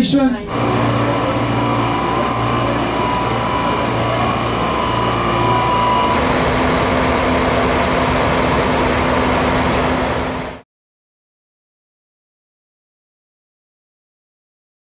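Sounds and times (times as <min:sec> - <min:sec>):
diesel train engine idling: 0:00.0 - 0:10.6.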